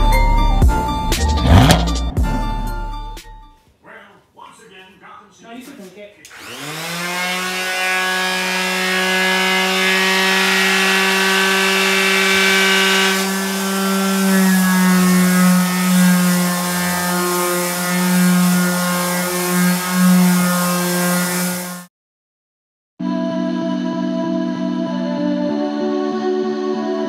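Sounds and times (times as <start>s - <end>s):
electric sander humming: 6.3s - 21.9s.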